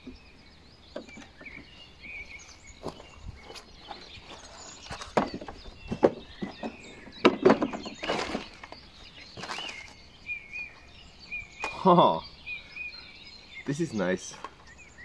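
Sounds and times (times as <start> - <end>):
birds chirping: 0.0 - 15.0
hard plastic knocks and clatters: 4.9 - 8.8.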